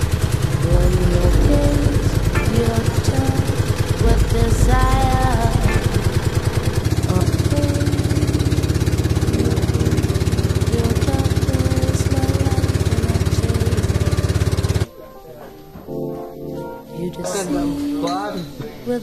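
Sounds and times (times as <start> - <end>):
small boat engine running: 0.0 - 14.9
person speaking: 0.6 - 6.1, 17.0 - 18.9.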